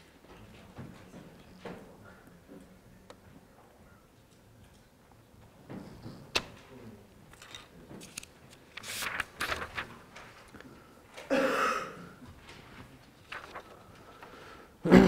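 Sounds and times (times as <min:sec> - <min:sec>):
paper rustling: 0:07.3 - 0:10.8, 0:12.3 - 0:14.4.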